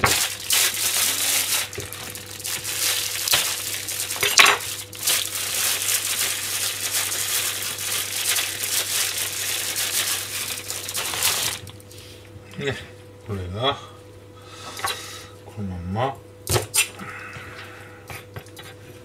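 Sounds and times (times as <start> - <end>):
plastic bag crinkling: 0.0 - 11.8.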